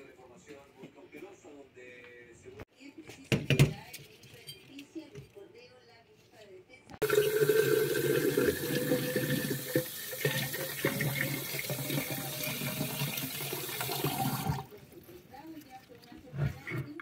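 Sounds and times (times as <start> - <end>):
tap water pouring into a jar: 7.0 - 14.7.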